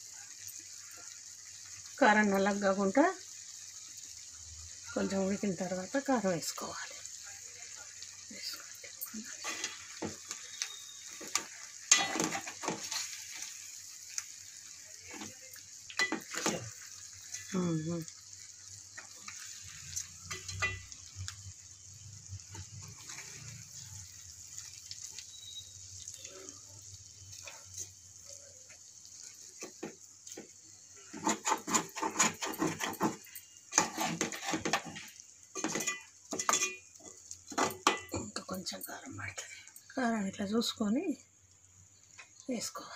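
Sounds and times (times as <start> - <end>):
frying oil sizzling: 0.0 - 42.9
metal spoon scraping a pot: 9.2 - 13.4, 31.0 - 38.2.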